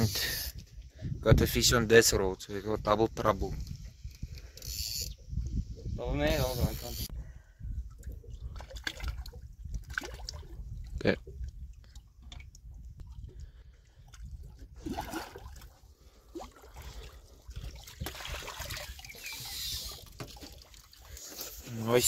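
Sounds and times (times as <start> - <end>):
water sloshing and splashing: 7.8 - 22.0.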